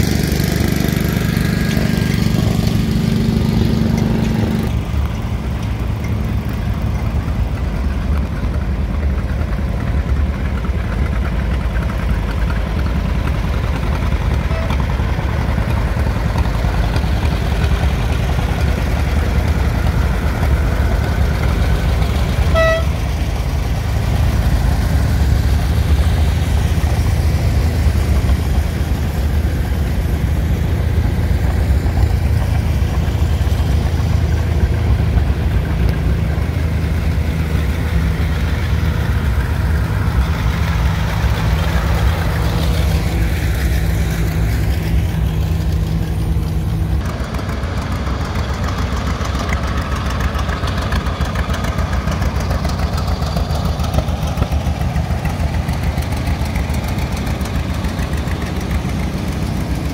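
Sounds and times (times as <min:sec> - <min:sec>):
tractor engines running: 0:00.0 - 0:59.9
horn toot: 0:14.4 - 0:14.9, 0:22.4 - 0:23.2.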